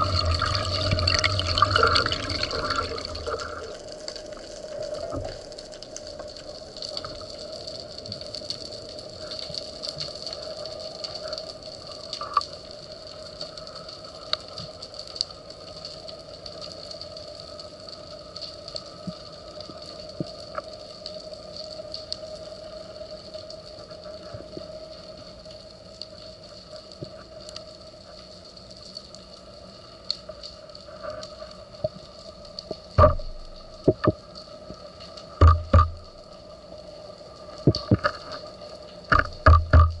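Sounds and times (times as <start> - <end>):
faint clicks and crackles: 0.0 - 40.0
steady underwater hum: 0.0 - 40.0.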